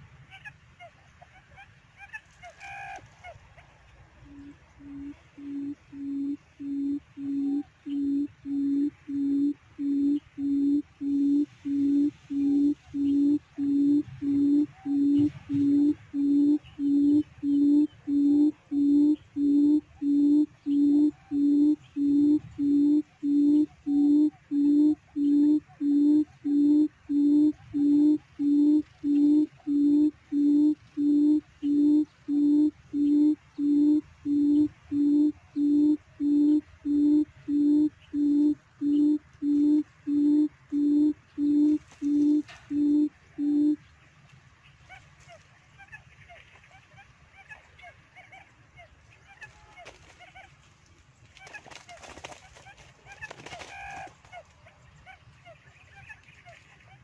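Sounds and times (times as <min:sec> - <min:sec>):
quail call low hoots: 0:04.2 - 0:43.6.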